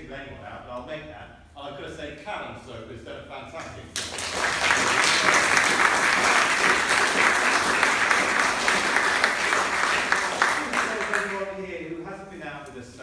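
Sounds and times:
audience applauding: 4.0 - 11.5.

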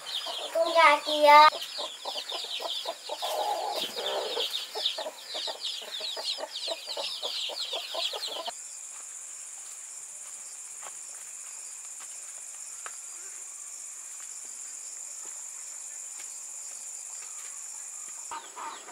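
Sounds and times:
chicks peeping: 0.0 - 8.5
crickets buzzing: 0.0 - 18.9.

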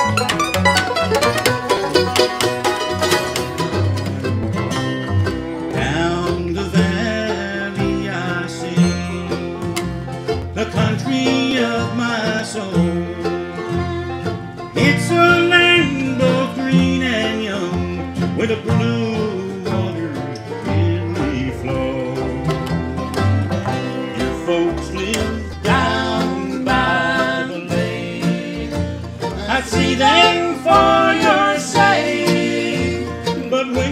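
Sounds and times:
bluegrass band playing: 0.0 - 33.9.

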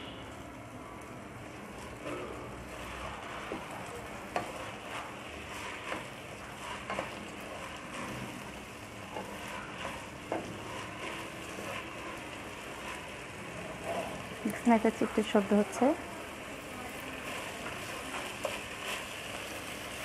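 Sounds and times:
rice sizzling in oil: 0.0 - 20.0
spatula scraping pan: 1.9 - 15.7, 16.9 - 20.0.

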